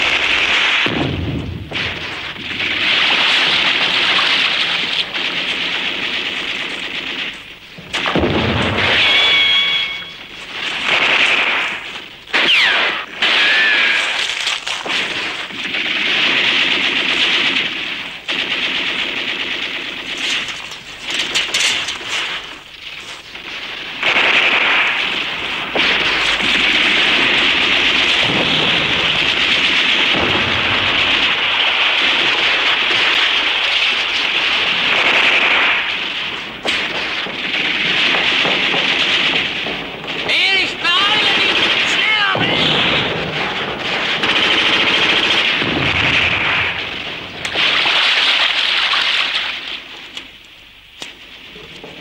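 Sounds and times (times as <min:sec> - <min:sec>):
machine-gun and rifle fire: 0:00.0 - 0:52.0
sharp single gunshots: 0:07.9 - 0:14.3.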